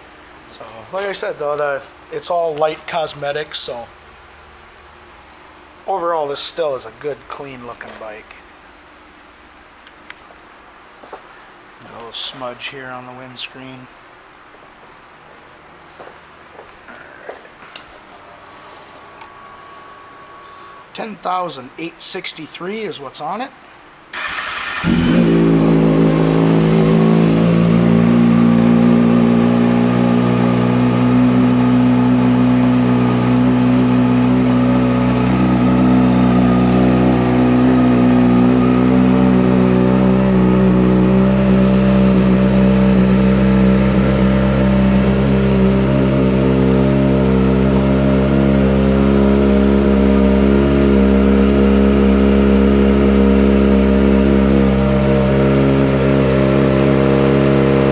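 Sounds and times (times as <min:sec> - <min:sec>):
motorcycle engine idling: 0:24.6 - 0:57.9.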